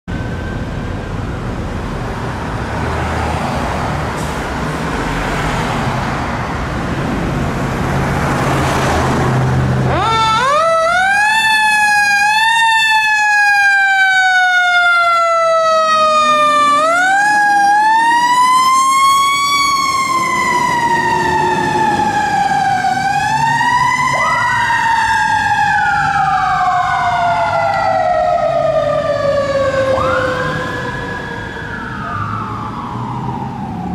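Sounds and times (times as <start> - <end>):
fire engine running: 0.1 - 33.9
siren wailing: 9.8 - 33.9.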